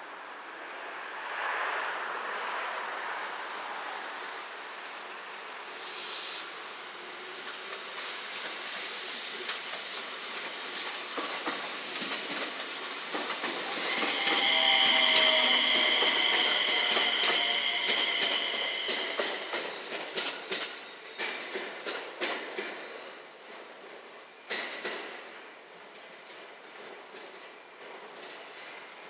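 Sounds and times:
high squeal of train wheels: 5.6s - 22.3s
train wheels clicking over rail joints: 7.7s - 23.0s.

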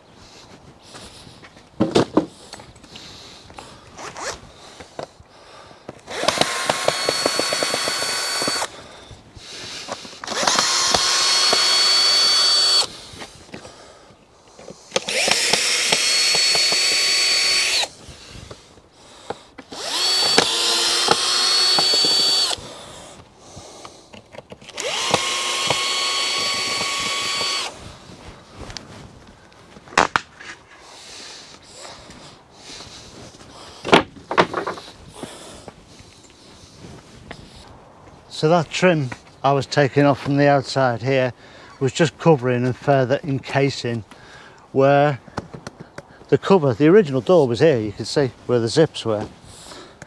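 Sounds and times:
cordless drill whining: 6.0s - 8.9s, 10.1s - 13.1s, 14.9s - 18.6s, 19.2s - 22.9s, 24.6s - 28.0s.

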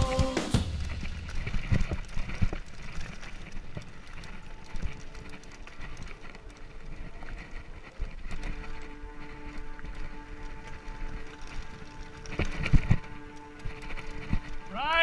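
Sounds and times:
bike knocking and rattling: 0.0s - 14.7s
bike tyres rumbling on dirt: 0.0s - 15.0s.

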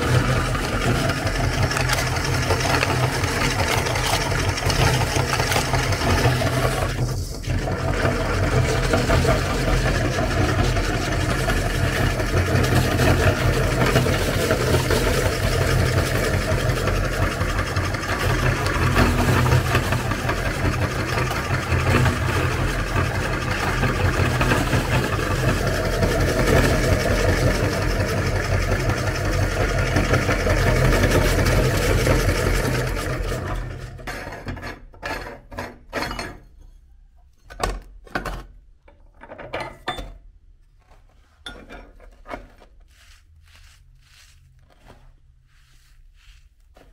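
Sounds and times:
meat grinder motor humming: 0.0s - 34.1s
metal knocks and scrapes: 33.4s - 40.2s, 40.8s - 42.9s.

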